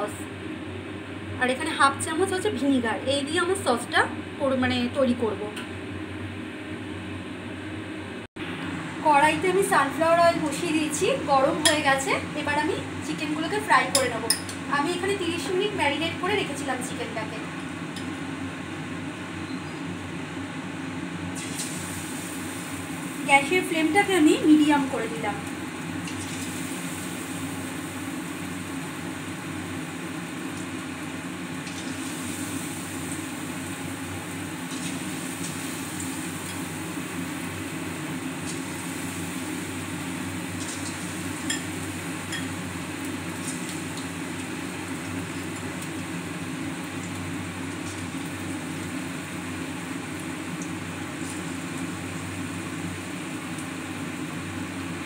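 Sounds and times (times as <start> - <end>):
chicken deep-frying in oil: 8.4 - 55.0
oil popping and crackling: 26.0 - 27.1, 40.4 - 41.6.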